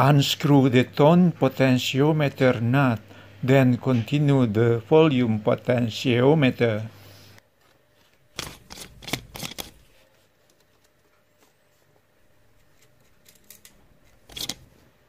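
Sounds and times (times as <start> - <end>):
metal nuts clicking and scraping: 12.7 - 14.7.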